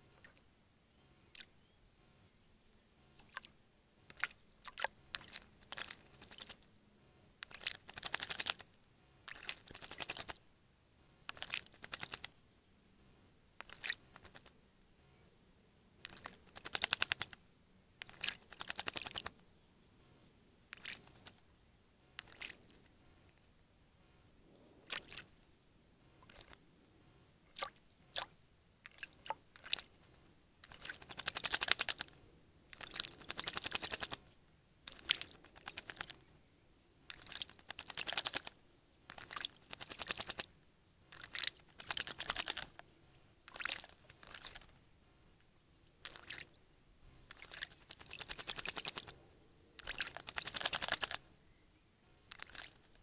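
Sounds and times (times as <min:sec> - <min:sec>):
bird splashing in water: 0:04.1 - 0:06.6, 0:07.4 - 0:08.7, 0:09.3 - 0:10.4, 0:11.3 - 0:12.3, 0:13.6 - 0:14.5, 0:16.0 - 0:17.4, 0:18.0 - 0:19.3, 0:20.7 - 0:21.4, 0:22.2 - 0:22.7, 0:24.9 - 0:25.3, 0:27.5 - 0:29.9, 0:30.6 - 0:34.3, 0:34.9 - 0:36.2, 0:37.1 - 0:40.5, 0:41.1 - 0:42.8, 0:43.5 - 0:44.8, 0:46.0 - 0:46.6, 0:47.3 - 0:49.2, 0:49.8 - 0:51.2, 0:52.3 - 0:52.8.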